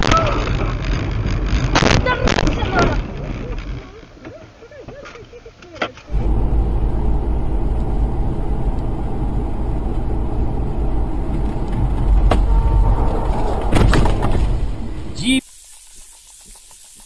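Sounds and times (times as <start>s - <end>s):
car rumble on snowy road: 6.1s - 15.2s.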